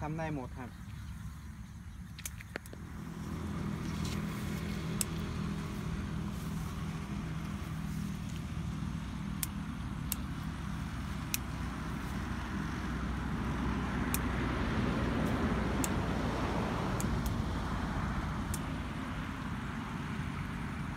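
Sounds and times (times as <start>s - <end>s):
low motor hum: 0.5s - 20.9s
sharp clicks: 2.1s - 2.8s, 4.9s - 5.4s, 9.3s - 11.6s, 15.2s - 16.0s, 18.4s - 18.7s.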